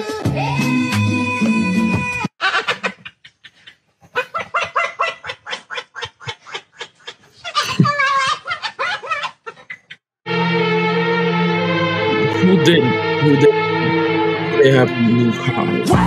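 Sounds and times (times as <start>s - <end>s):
parrot imitating laughter: 2.4s - 10.0s.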